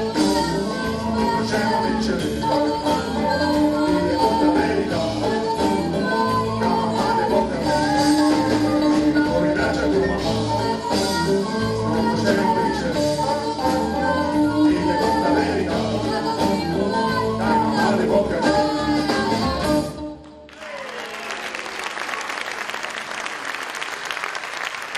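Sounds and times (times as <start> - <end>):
live latin band playing: 0.0 - 20.2
woman singing: 0.0 - 20.3
audience applause: 20.5 - 24.9.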